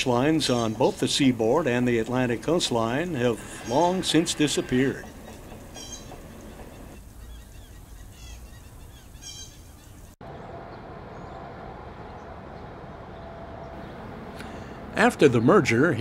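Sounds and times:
short bird calls: 3.4s - 10.0s.

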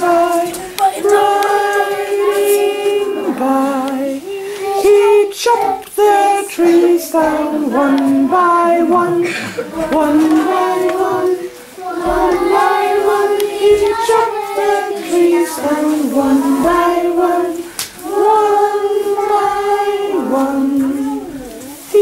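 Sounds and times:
children singing in unison: 0.0s - 22.0s.

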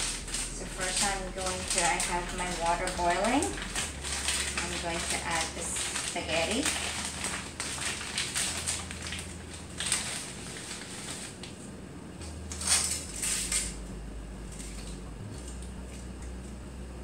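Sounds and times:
plastic package crinkling: 0.0s - 11.6s, 12.5s - 13.8s.

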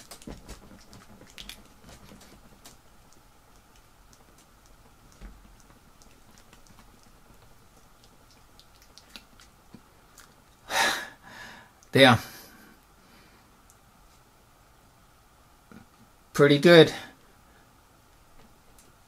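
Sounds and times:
faint clicks and rustling: 0.0s - 10.6s.

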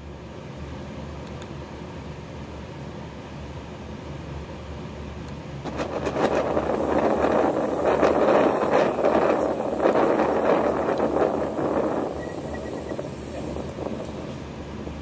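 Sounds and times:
road and wind noise: 3.2s - 15.0s.

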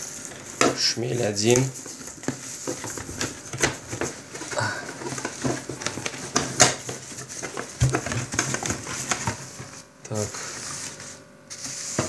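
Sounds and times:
bubble wrap crinkling: 0.0s - 12.0s
cardboard box rustling and knocking: 0.5s - 9.8s.

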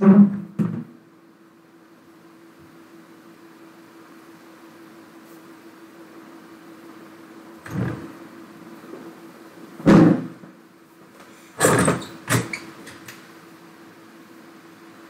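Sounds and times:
steady hiss: 1.1s - 15.0s.

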